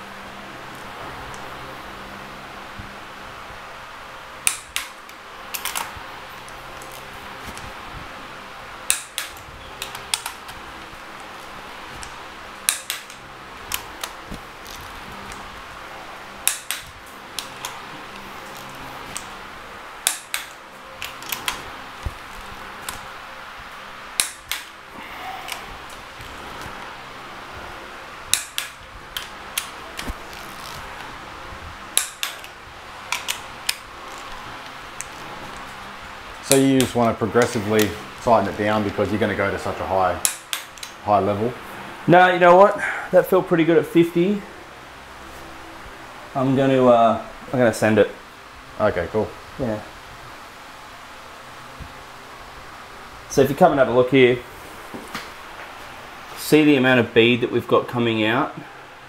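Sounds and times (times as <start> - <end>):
torque wrench clicking: 4.4 - 5.9, 8.9 - 10.5, 12.0 - 14.9, 16.4 - 17.8, 20.0 - 21.6, 24.2 - 24.7, 28.3 - 30.8, 32.0 - 34.2, 40.2 - 41.0.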